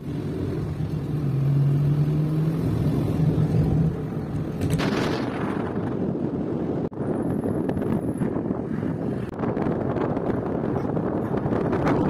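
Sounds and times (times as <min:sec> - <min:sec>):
car engine hum: 0:00.0 - 0:12.0
road noise: 0:00.0 - 0:12.0.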